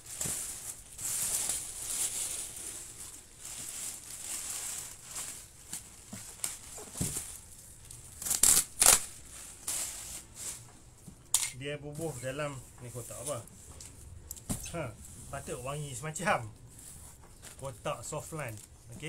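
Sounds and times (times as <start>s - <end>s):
plastic bag crinkling: 0.0s - 10.7s.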